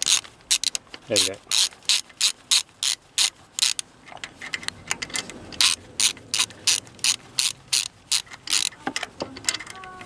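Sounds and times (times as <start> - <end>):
socket ratchet clicking: 1.5 - 3.8, 4.5 - 10.0.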